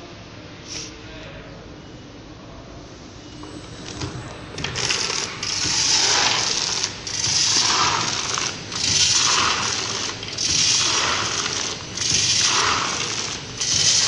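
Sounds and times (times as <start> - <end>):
beans rattling in metal hopper: 4.6 - 14.0.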